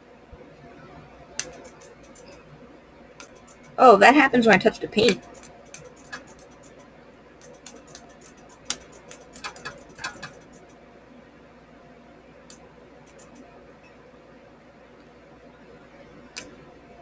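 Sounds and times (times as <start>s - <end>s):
welding sparks crackling: 1.4s - 2.4s, 3.2s - 4.0s, 5.0s - 6.8s, 7.4s - 10.7s.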